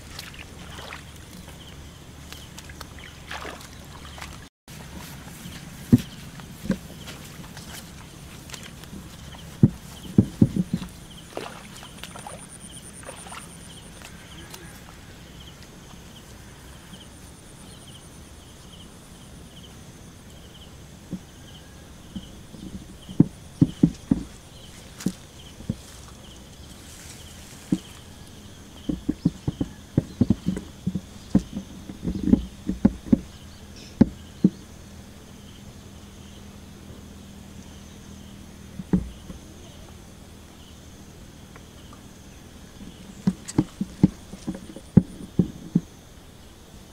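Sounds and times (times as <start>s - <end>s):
footsteps squelching through mud: 0.0s - 15.7s, 22.2s - 33.3s, 42.8s - 45.9s.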